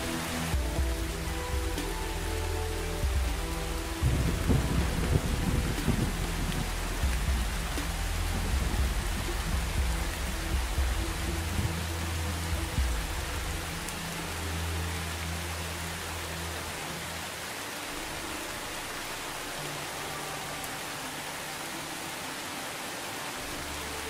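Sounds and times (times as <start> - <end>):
low rumble: 0.0 - 17.3
rain on leaves and grass: 0.0 - 24.0.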